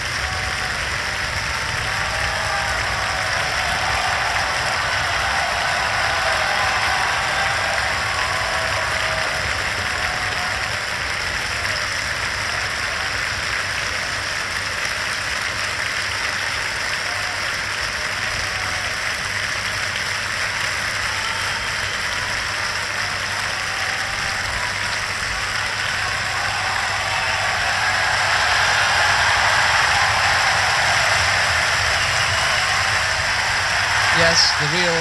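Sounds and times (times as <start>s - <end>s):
audience calling for encore: 0.0s - 11.8s, 21.0s - 35.0s
audience applauding: 0.0s - 35.0s.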